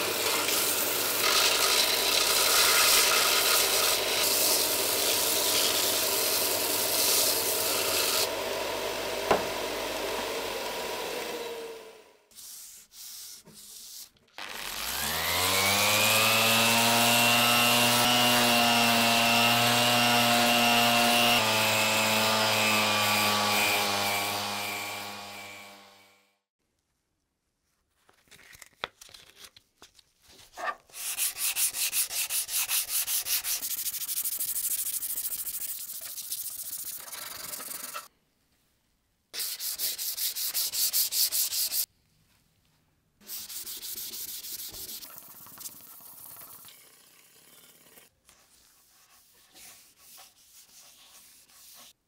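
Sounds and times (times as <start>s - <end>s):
sandpaper rubbing on resin: 1.2s - 8.2s, 12.3s - 14.2s, 30.9s - 38.1s, 39.4s - 41.9s, 43.2s - 52.0s.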